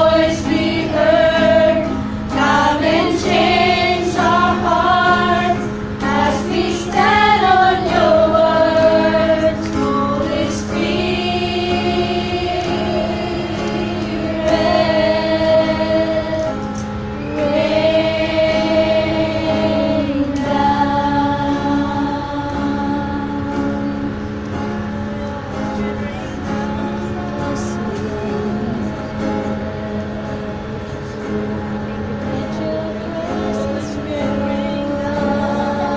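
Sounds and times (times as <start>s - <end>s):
women singing a worship song: 0.0s - 24.2s, 25.0s - 35.9s
acoustic guitar: 0.0s - 35.9s.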